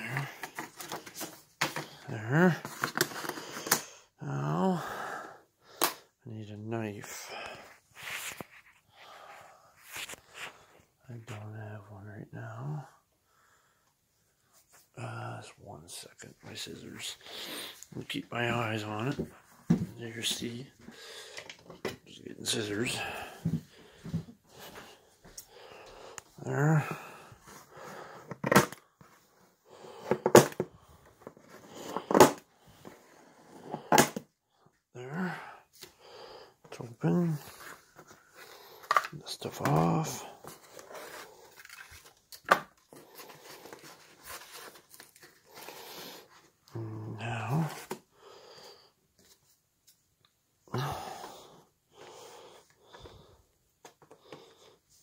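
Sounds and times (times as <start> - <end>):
plastic rustling: 40.4 - 46.4
man breathing out hard: 50.7 - 53.4.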